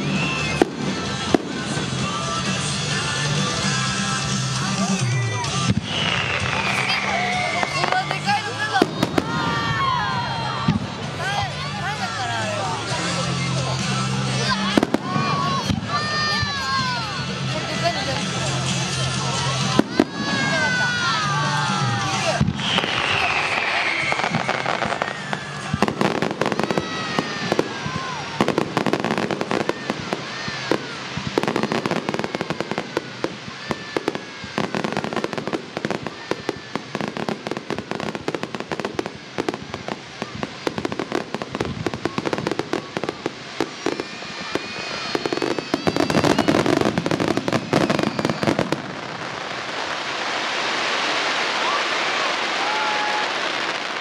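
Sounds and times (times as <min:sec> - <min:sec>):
firework whistles: 0:00.0 - 0:54.0
fireworks bangs and crackling: 0:00.0 - 0:54.0
steady hiss: 0:20.5 - 0:54.0.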